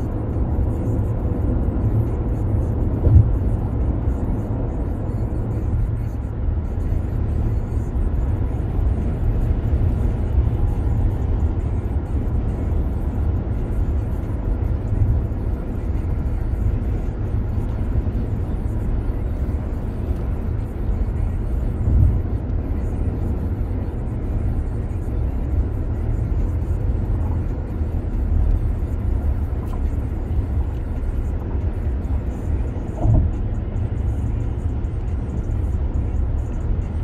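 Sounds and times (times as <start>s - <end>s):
road and wind noise in car: 0.0s - 37.0s
car bump: 33.0s - 33.4s.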